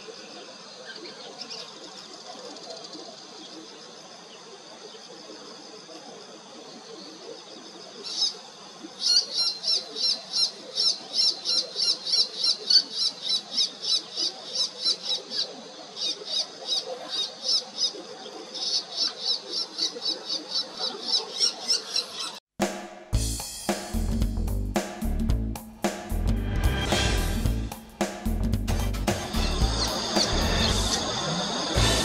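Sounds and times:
shrike calling high notes: 28.8s - 32.0s.

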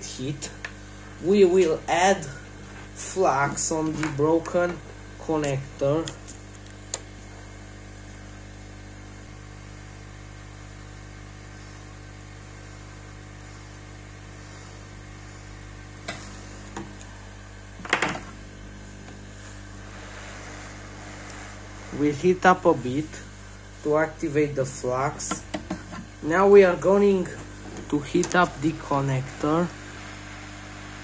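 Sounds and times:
blower humming: 0.0s - 31.0s.

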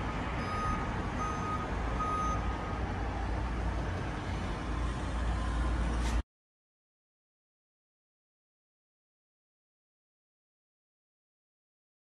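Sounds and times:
low engine rumble: 0.0s - 6.2s
vehicle reversing alarm beeping: 0.4s - 2.8s.

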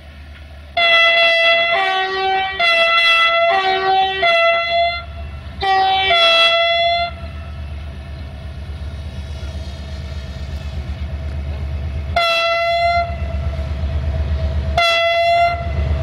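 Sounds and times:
low diesel engine rumble: 0.0s - 16.0s
locomotive horn two-tone blasts: 0.8s - 7.6s, 12.1s - 13.6s, 14.7s - 16.0s.

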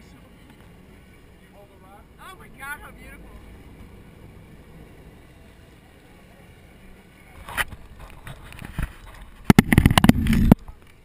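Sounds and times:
camera handling knocks and rattles: 7.5s - 10.6s.

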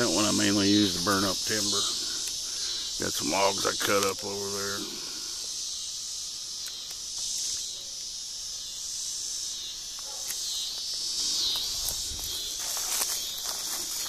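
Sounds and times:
insects singing: 0.0s - 14.0s
footsteps crunching through grass: 10.8s - 14.0s.

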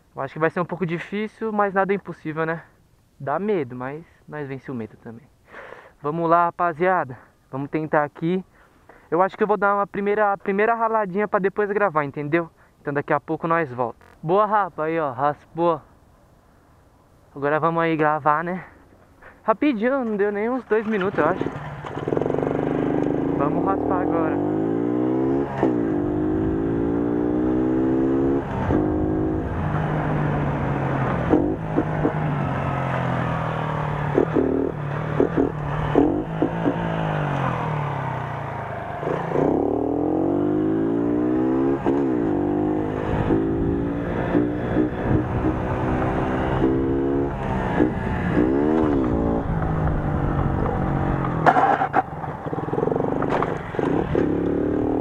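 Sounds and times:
metal scraping on asphalt: 20.0s - 23.4s, 51.3s - 54.6s
moped engine running: 20.9s - 25.0s, 47.7s - 55.0s
moped engine revving: 20.9s - 55.0s.

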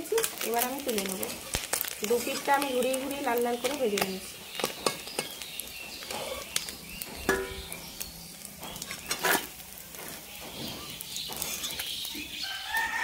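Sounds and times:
fish sizzling in oil: 0.0s - 13.0s
spatula scraping pan: 6.0s - 6.6s, 7.2s - 12.2s.

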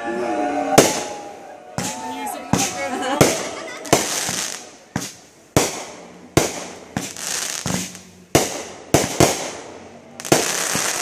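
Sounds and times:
fireworks bursting with sharp bangs: 0.7s - 11.0s.

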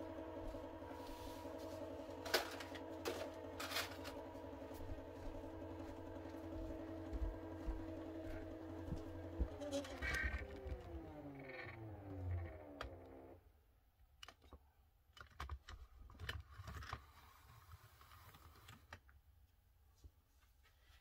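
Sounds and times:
machine motors whining: 0.0s - 13.4s.

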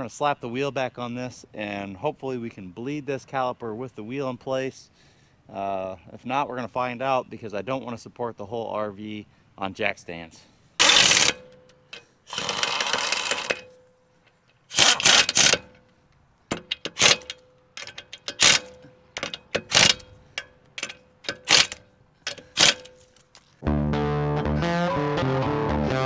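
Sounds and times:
air impact wrench bursts: 10.8s - 13.7s, 14.7s - 15.8s, 16.5s - 23.1s
metallic clicks: 10.8s - 23.6s.

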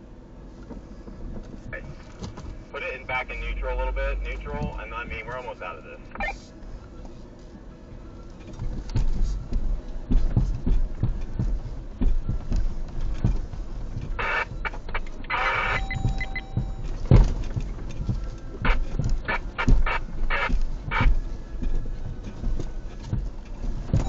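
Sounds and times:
vehicle thumps and knocks: 8.4s - 24.0s.

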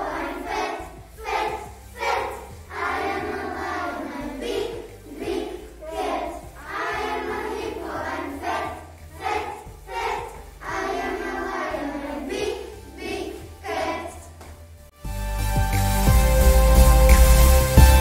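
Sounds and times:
children singing: 0.0s - 14.4s
music backing track: 0.0s - 18.0s.

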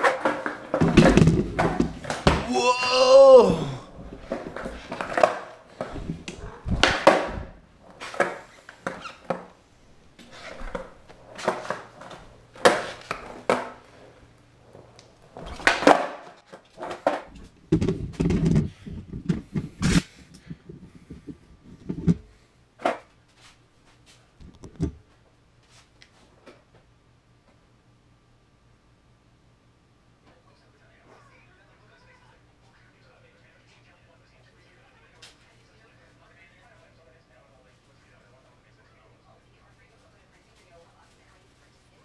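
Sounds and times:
skateboard clacking on concrete: 4.3s - 9.5s, 10.5s - 13.8s, 15.4s - 17.3s.

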